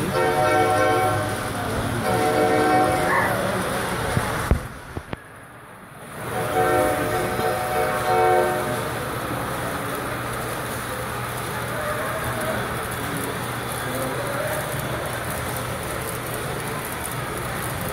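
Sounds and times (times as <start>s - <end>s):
model locomotive horn chord: 0.0s - 3.1s, 6.3s - 9.1s
faint voices: 0.0s - 5.4s, 6.1s - 17.9s.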